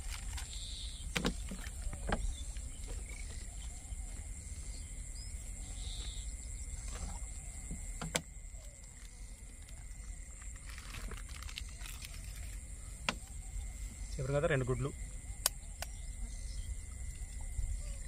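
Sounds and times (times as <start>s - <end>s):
wind rumble on microphone: 14.9s - 18.0s.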